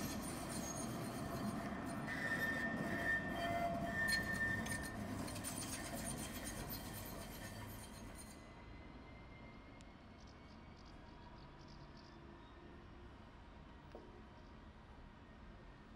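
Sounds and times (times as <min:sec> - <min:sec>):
high wheel squeals: 0:00.0 - 0:08.4
tram rumbling on rails: 0:00.0 - 0:09.0.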